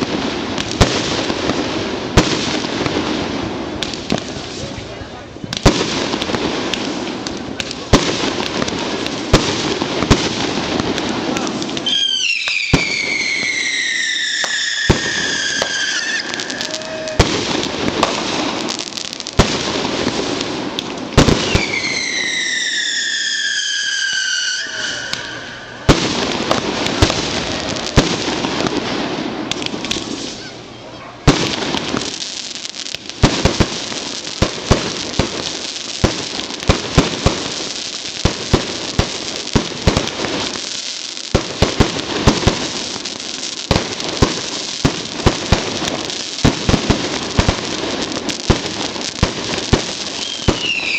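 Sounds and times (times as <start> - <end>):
rapid firework pops: 0.0 - 4.8, 5.5 - 13.6, 14.4 - 21.9, 25.9 - 30.4, 31.2 - 50.9
firework bangs: 0.0 - 50.9
fireworks sparks hissing: 0.0 - 50.9
falling firework whistle: 11.4 - 18.3, 21.2 - 27.8, 50.0 - 50.9.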